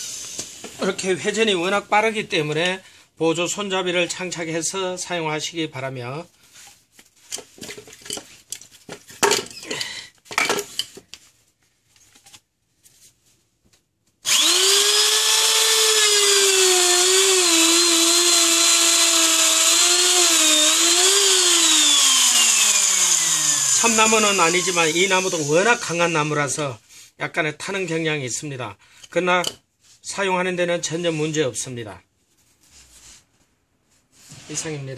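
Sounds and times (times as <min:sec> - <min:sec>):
electric drill whining: 0:14.2 - 0:26.0.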